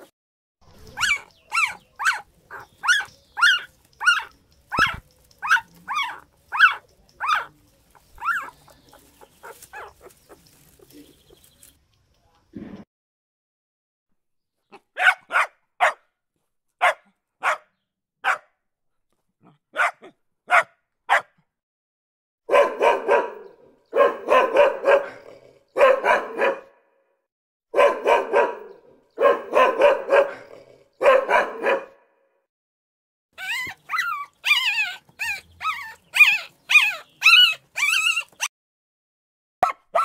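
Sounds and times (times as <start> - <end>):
dog barking: 0.9 - 7.5, 8.2 - 8.6, 9.4 - 10.4, 14.7 - 16.1, 16.8 - 18.6, 19.4 - 21.4, 22.5 - 26.9, 27.7 - 32.2, 39.6 - 40.0.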